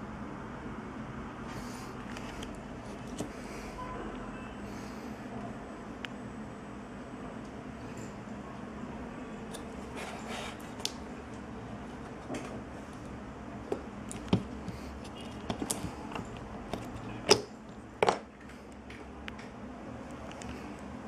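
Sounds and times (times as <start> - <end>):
steady low hum: 0.0 - 21.0
handling clicks and knocks: 13.7 - 18.3.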